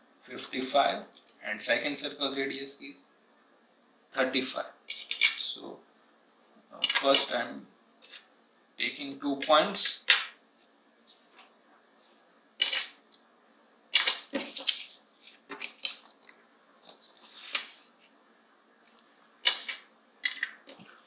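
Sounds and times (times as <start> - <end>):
paper rustling: 14.0 - 17.9.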